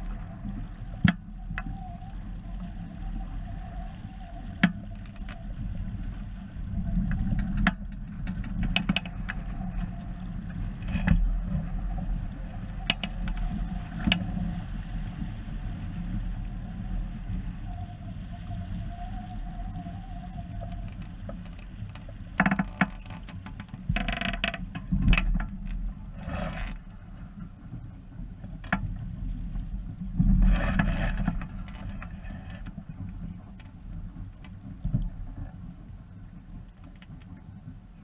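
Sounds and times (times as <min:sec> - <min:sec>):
low wind rumble: 0:00.0 - 0:38.0
water splashing along boat hull: 0:00.0 - 0:38.0.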